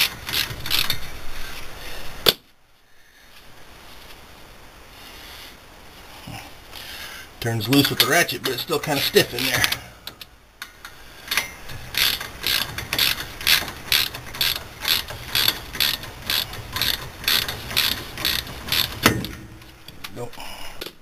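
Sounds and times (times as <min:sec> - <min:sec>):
socket ratchet clicking: 0:11.3 - 0:19.1.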